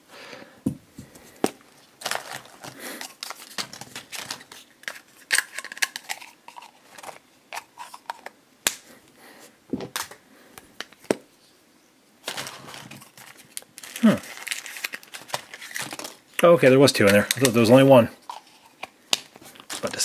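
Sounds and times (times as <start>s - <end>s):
plastic rustling: 1.0s - 8.3s, 12.2s - 20.0s.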